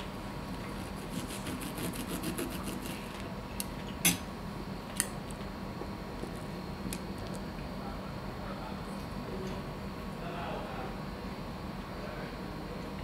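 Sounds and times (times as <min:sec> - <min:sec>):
knife sawing through meat: 0:00.8 - 0:03.1.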